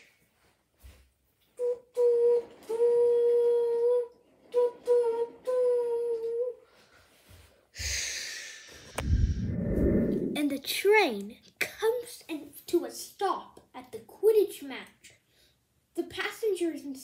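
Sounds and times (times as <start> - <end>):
child humming: 1.6 - 6.7
hiss: 7.8 - 9.4.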